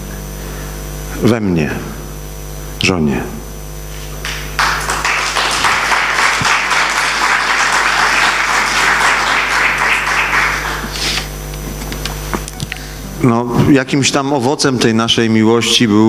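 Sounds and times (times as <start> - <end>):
electrical mains hum: 0.0 - 16.0
audience applauding: 4.2 - 11.8.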